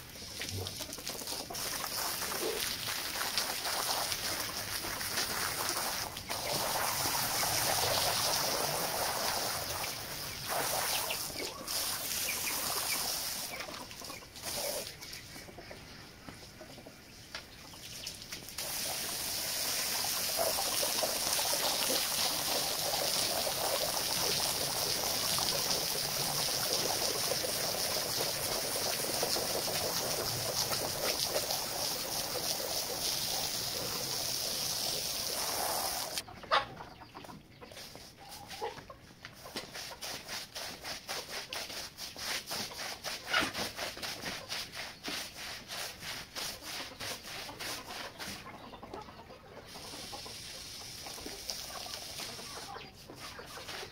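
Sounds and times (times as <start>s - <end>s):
hose spraying water: 0.0s - 15.0s, 18.0s - 36.2s, 39.4s - 48.2s, 49.7s - 53.9s
broom scrubbing wet carpet: 37.8s - 48.5s.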